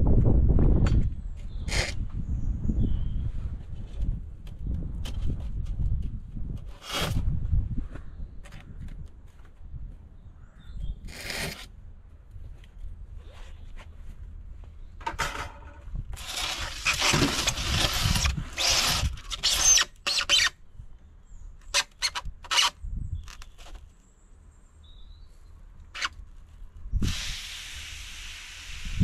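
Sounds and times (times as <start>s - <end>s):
polystyrene scraping: 16.2s - 20.5s
polystyrene squeaking: 16.2s - 20.6s
steady hiss: 27.0s - 29.0s.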